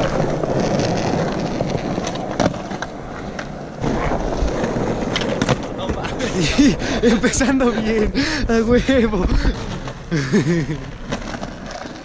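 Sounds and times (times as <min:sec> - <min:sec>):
skateboard clack: 0:00.0 - 0:06.6, 0:09.2 - 0:12.0
skateboard wheels rolling on concrete: 0:00.0 - 0:12.0.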